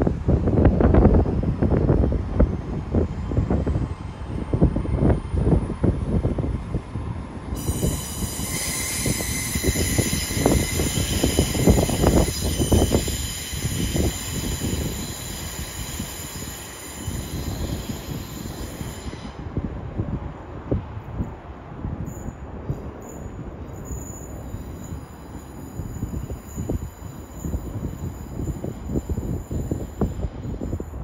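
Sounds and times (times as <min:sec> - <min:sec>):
low rumble of train: 0:00.0 - 0:31.0
train wheels squealing: 0:07.5 - 0:19.4, 0:22.0 - 0:31.0.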